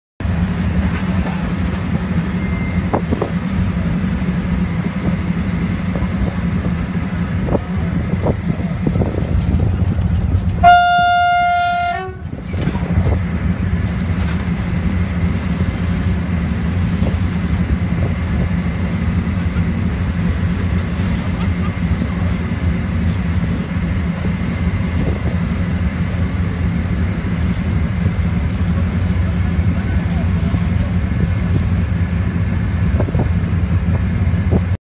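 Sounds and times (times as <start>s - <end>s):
low rumble: 0.2s - 34.8s
train horn blast: 10.5s - 12.4s.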